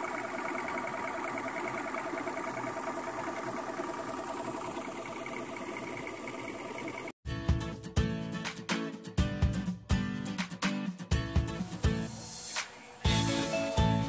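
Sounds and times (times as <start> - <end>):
small boat motor whirring: 0.0 - 7.2.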